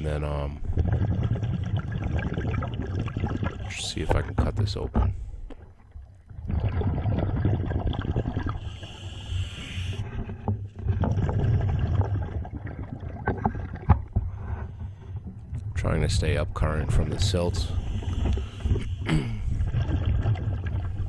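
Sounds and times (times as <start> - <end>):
exhaled bubbles rushing: 0.0 - 14.6, 15.6 - 21.0
regulator inhalation hiss: 8.6 - 10.1, 17.6 - 19.1.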